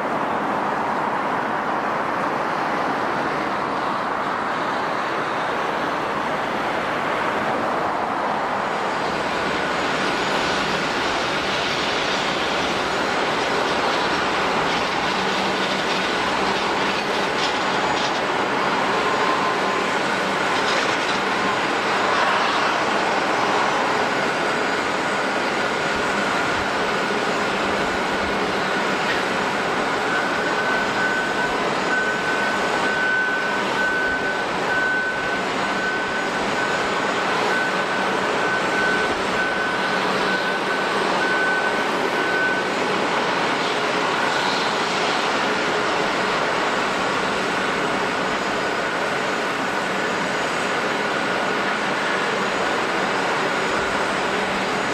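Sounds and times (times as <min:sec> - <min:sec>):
jet engines idling: 0:02.0 - 0:54.9.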